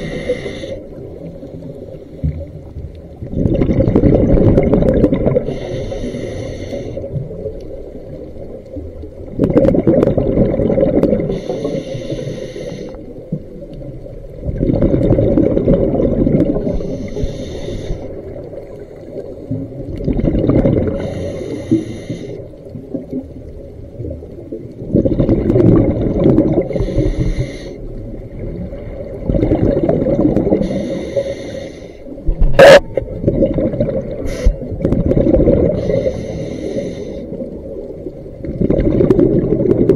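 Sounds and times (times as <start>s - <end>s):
regulator hiss on inhale: 0.0s - 2.5s, 5.4s - 7.2s, 11.3s - 13.3s, 16.6s - 18.4s, 20.9s - 22.6s, 26.6s - 28.0s, 30.5s - 32.2s, 34.2s - 34.7s, 35.7s - 37.4s
exhaled bubbles rushing: 3.1s - 5.6s, 9.2s - 11.4s, 13.8s - 16.9s, 18.1s - 21.2s, 22.8s - 27.0s, 28.0s - 30.8s, 32.2s - 36.0s, 37.3s - 39.9s.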